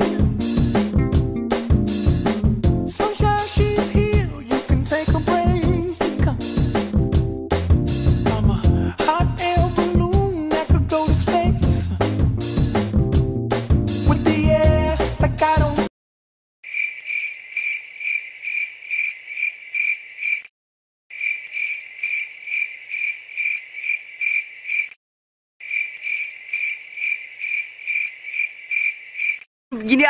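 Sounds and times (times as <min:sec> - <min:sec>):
music: 0:00.0 - 0:15.9
cricket chirping: 0:16.7 - 0:20.5, 0:21.1 - 0:25.0, 0:25.6 - 0:29.5.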